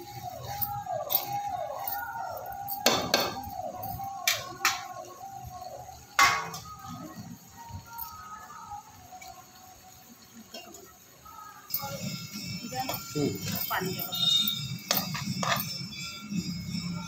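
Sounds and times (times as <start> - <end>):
repeating tone: 11.8 - 17.0
metal spatula scraping a pan: 14.9 - 15.8.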